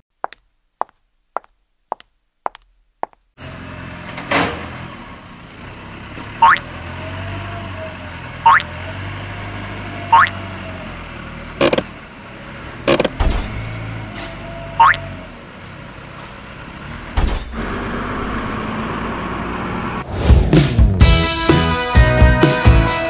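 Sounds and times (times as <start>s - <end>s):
loader engine running: 3.4s - 20.6s
short rising squeak: 17.2s - 18.2s.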